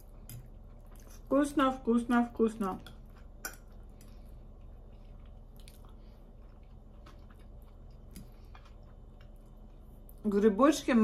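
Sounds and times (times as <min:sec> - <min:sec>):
chewing salad: 0:00.0 - 0:10.4
low steady hum: 0:00.0 - 0:11.0.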